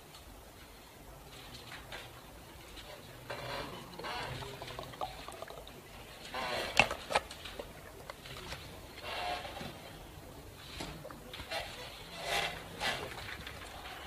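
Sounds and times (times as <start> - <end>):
murmur of voices: 1.0 - 14.0.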